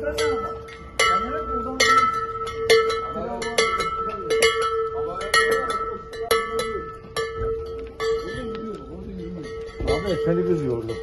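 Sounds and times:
large bells clanking: 0.0 - 11.0.

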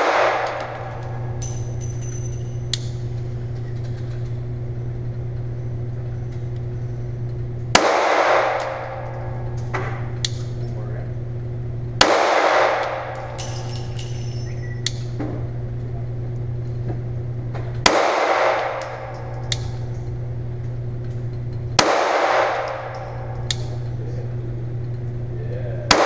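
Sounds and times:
pistol shots ringing out: 0.0 - 2.2, 7.7 - 9.4, 12.0 - 15.1, 17.8 - 19.9, 21.8 - 23.9
steady low hum: 0.0 - 26.0.

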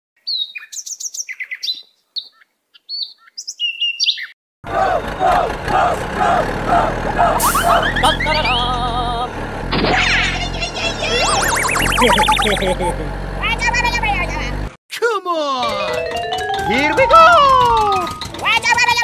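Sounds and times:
bird chirps and tweets: 0.2 - 4.4
rising whistle-like glides: 11.3 - 12.5
music with melodic figure and bass: 15.6 - 18.3.

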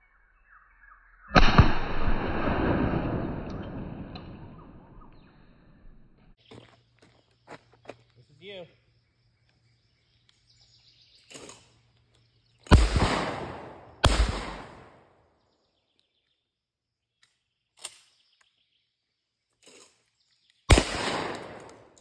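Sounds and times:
shotgun shots echoing: 1.4 - 5.2, 12.7 - 15.0, 20.7 - 22.0.

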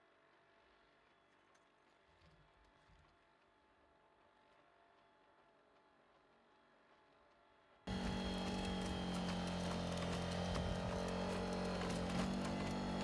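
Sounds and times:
robot engine drone: 7.9 - 13.0.

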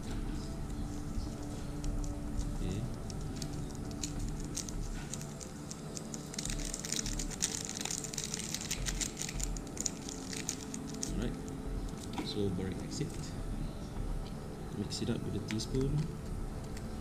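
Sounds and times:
plastic sachet crinkling: 1.8 - 11.6.

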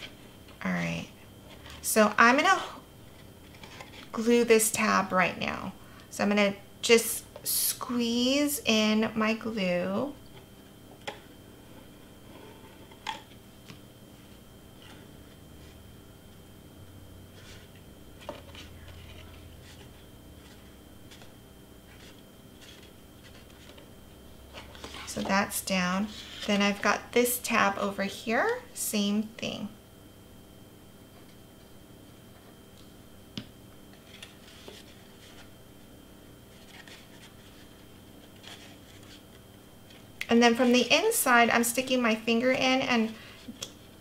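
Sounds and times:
low steady hum: 0.0 - 44.0
paper rustling and scraping: 17.3 - 23.9, 24.5 - 25.3, 26.0 - 26.8, 33.9 - 35.6, 36.4 - 40.1
cardstock rustling: 36.5 - 40.1.

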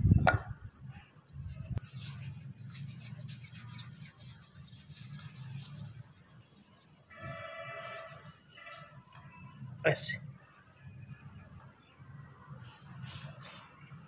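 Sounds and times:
hands rolling dough: 1.3 - 9.1.

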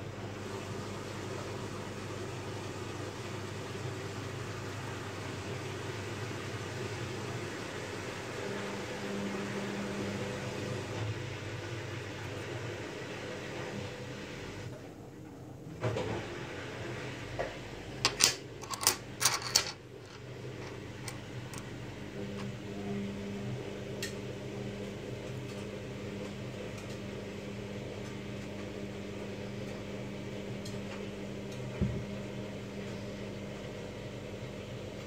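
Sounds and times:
low mechanical hum: 0.0 - 35.0.

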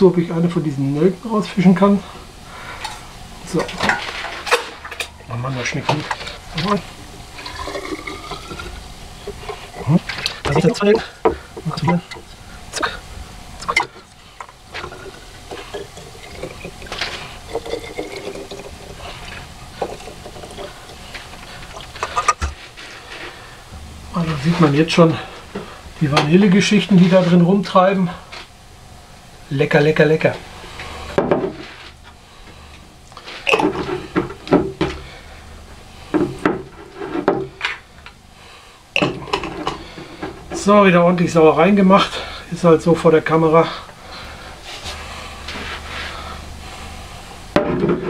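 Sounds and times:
liquid pouring into glass jar: 7.4 - 9.5, 14.8 - 21.1.

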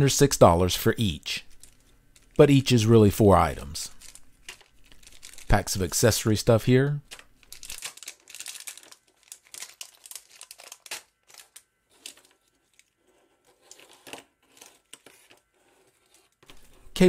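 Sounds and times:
cables rustling: 1.4 - 2.4, 3.6 - 6.1, 7.0 - 17.0
plastic packets crinkling: 1.5 - 2.4, 3.8 - 6.2, 7.0 - 16.7.

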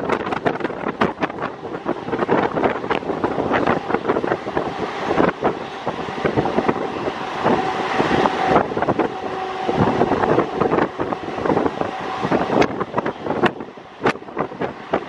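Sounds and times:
steady whine: 0.0 - 15.0
train wheels clattering on track: 0.0 - 15.0
wind buffeting microphone: 0.0 - 15.0.

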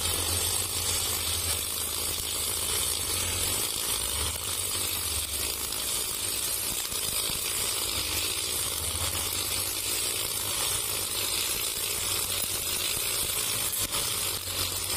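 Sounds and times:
brush cutter cutting grass: 0.0 - 14.9.

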